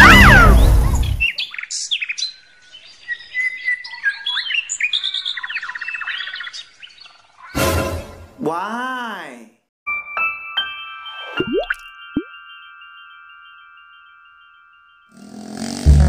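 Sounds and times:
birds chirping and trilling: 0:00.0 - 0:08.2.

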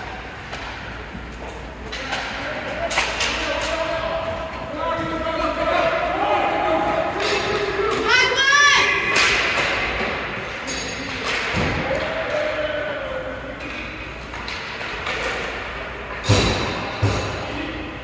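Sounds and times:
noisy rink background: 0:00.0 - 0:18.0
hockey play thuds and knocks: 0:09.1 - 0:10.4.

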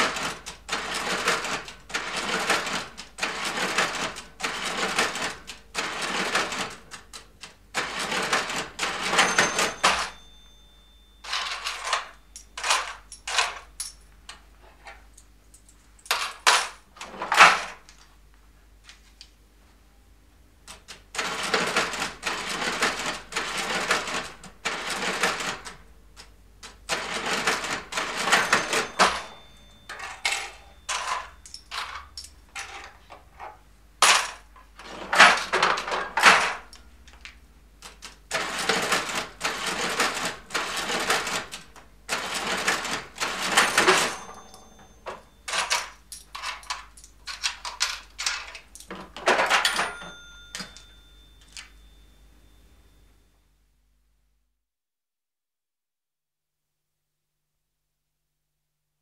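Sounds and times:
cash register mechanism clattering: 0:00.0 - 0:13.7, 0:16.0 - 0:17.9, 0:20.7 - 0:25.8, 0:26.6 - 0:36.8, 0:37.8 - 0:51.9
cash register keys struck: 0:00.0 - 0:14.0, 0:15.6 - 0:17.9, 0:26.6 - 0:33.1, 0:34.0 - 0:36.8, 0:37.8 - 0:52.1
cash drawer shutting: 0:07.8 - 0:10.3, 0:11.2 - 0:13.7, 0:16.1 - 0:17.8, 0:26.9 - 0:36.7, 0:38.3 - 0:51.7
cash drawer bell ringing: 0:07.8 - 0:13.8, 0:26.9 - 0:33.1, 0:38.3 - 0:53.2
change being handled: 0:28.2 - 0:33.1, 0:43.4 - 0:51.8.

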